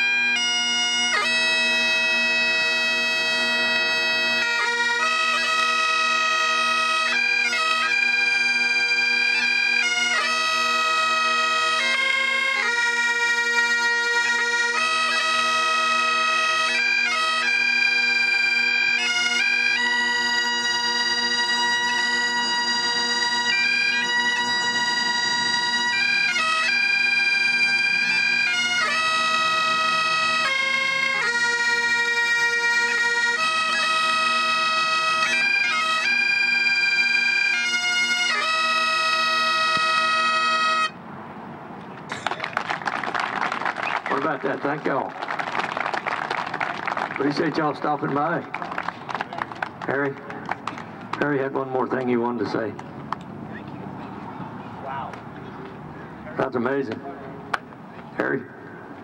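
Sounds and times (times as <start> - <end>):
bagpipes playing: 0.0 - 41.1, 42.1 - 52.4.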